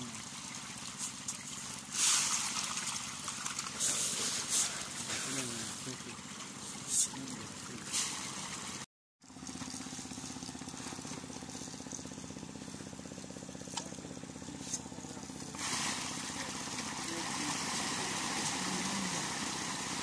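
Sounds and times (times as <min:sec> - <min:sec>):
water splashing: 0:00.0 - 0:20.0
small engine running: 0:09.2 - 0:20.0.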